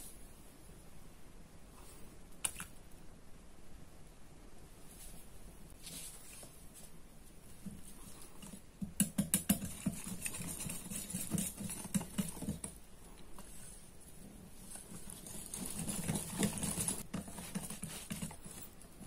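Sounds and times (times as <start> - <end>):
whisk clicking against glass bowl: 8.8 - 12.8.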